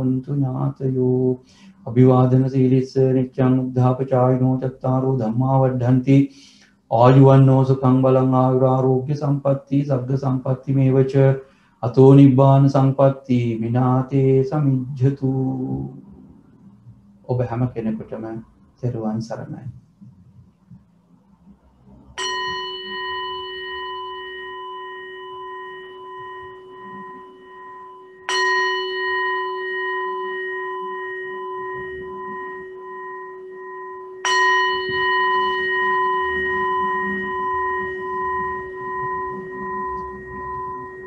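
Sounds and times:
singing bowl ringing: 0:22.0 - 0:41.0.

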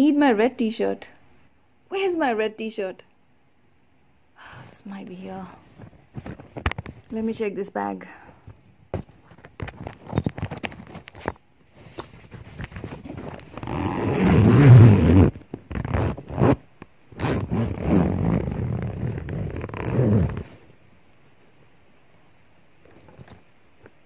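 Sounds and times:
bag rustling and scraping: 0:09.0 - 0:16.6, 0:17.2 - 0:20.7.

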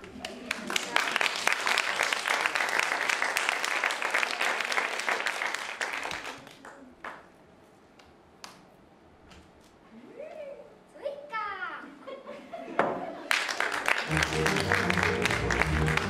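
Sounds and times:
audience applauding: 0:00.0 - 0:07.2, 0:13.2 - 0:16.0.

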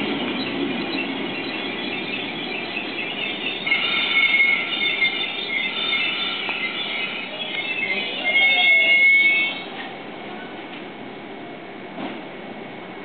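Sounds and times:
train wheels squealing on rail: 0:00.0 - 0:09.7
low train rumble: 0:00.0 - 0:13.0.

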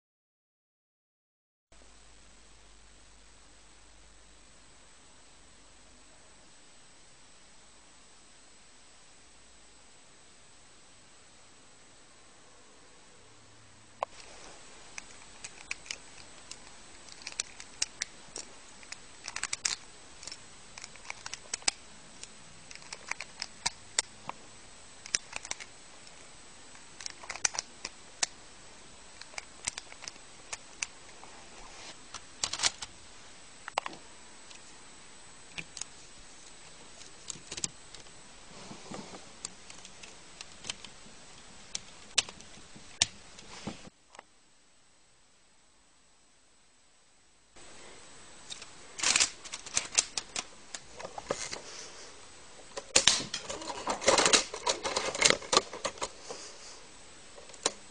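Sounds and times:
background hiss: 0:01.8 - 0:57.9
plastic bricks clicking: 0:15.0 - 0:21.8, 0:48.5 - 0:51.6.

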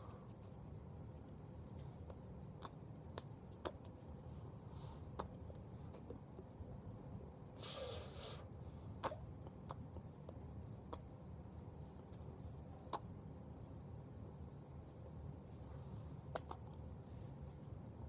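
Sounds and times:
low room hum: 0:00.0 - 0:18.0
breathy puff of air: 0:07.6 - 0:08.5.

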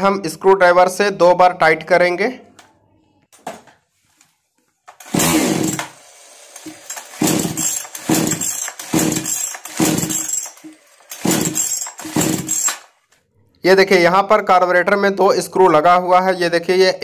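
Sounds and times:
chainsaw recoil starter pulls: 0:04.9 - 0:12.9.

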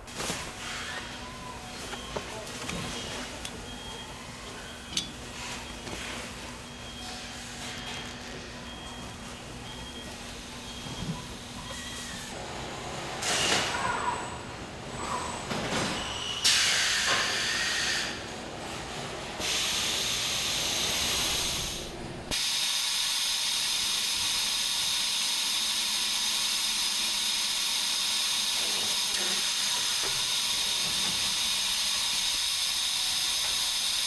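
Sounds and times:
factory machinery hiss: 0:13.2 - 0:13.9, 0:16.4 - 0:18.3, 0:19.4 - 0:34.0.

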